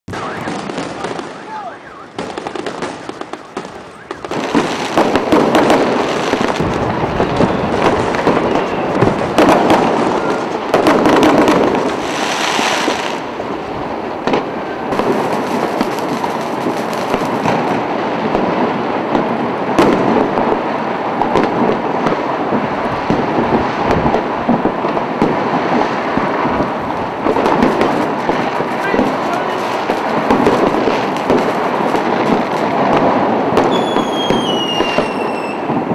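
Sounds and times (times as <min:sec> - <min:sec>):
fireworks crackling and banging: 0:00.1 - 0:35.9.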